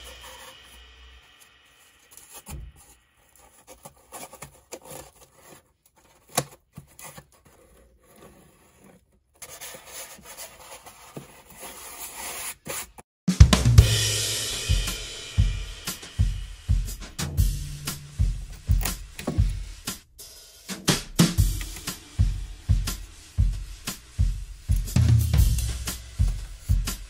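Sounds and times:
hands rubbing cardboard: 0.0 - 13.0, 16.9 - 27.0
music track: 13.3 - 27.0.

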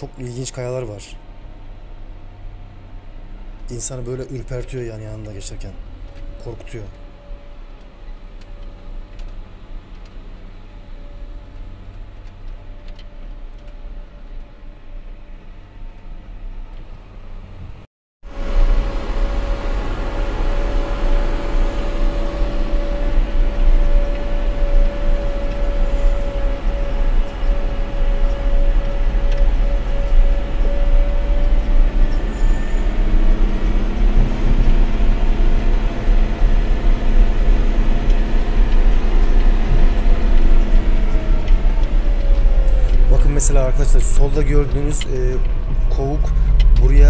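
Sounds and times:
diesel engine rumble: 0.0 - 47.0
steady whine: 18.3 - 47.0.

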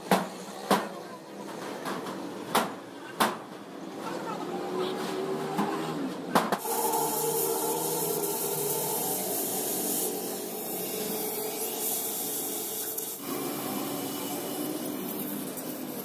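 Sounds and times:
compressed air hissing: 6.6 - 16.0.

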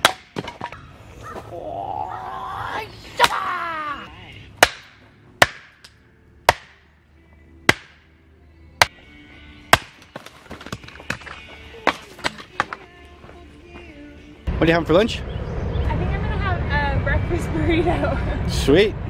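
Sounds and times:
hatchet chopping wood: 0.0 - 0.8, 4.6 - 6.8, 7.7 - 8.0, 9.7 - 12.8.

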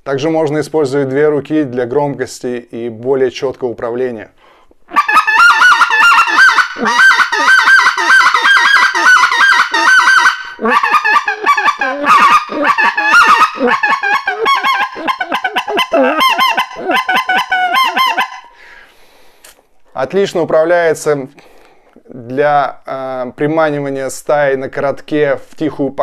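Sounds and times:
goose call yelps: 4.9 - 18.5.

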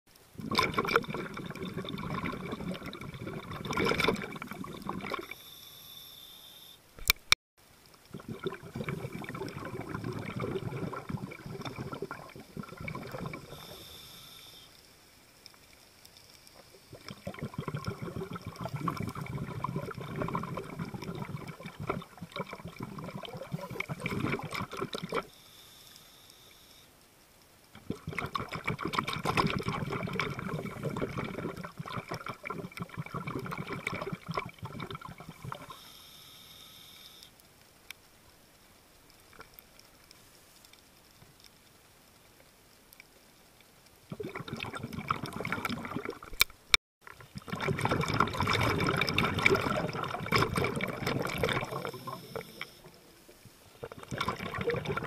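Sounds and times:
underwater crackling wash: 0.1 - 6.1, 7.0 - 55.0
sharp click: 7.0 - 7.4.

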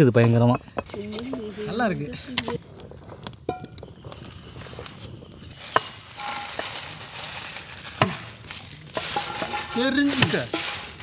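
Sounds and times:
chillies clinking against pan: 5.6 - 7.1, 8.9 - 11.0
dried chillies pouring into pan: 5.6 - 11.0.

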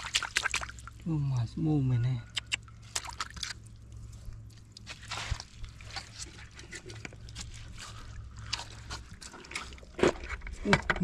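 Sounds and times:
water splashes in bucket: 0.0 - 1.1, 2.6 - 11.0
steady low hum: 0.0 - 11.0.

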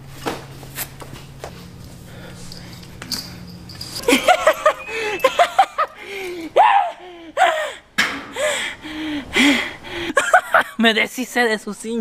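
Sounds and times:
person laughing: 4.0 - 7.8.

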